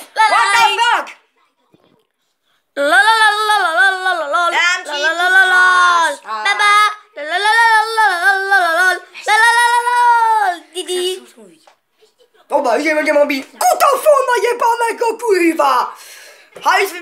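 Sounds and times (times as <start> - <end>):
high-pitched voice singing: 2.8 - 11.0.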